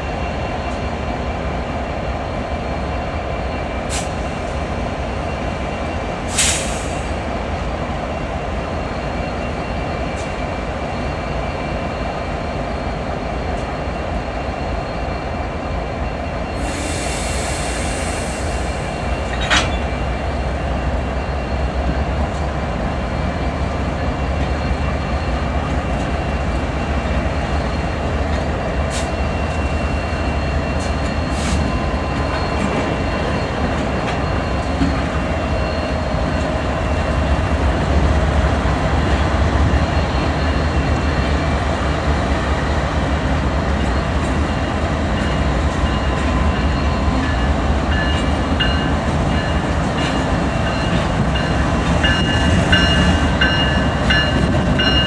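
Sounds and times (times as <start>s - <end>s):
air hiss: 6.3s - 7.1s, 16.6s - 18.9s.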